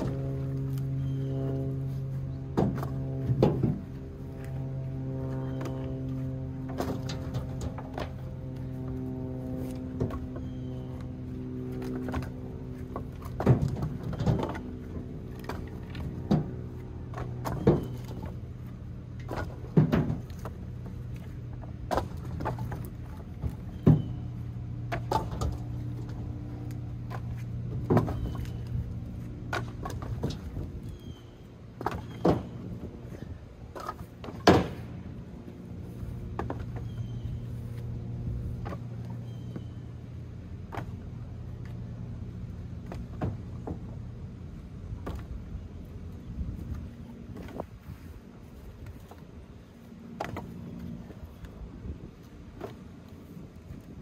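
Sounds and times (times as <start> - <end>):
low engine hum: 0.0 - 54.0.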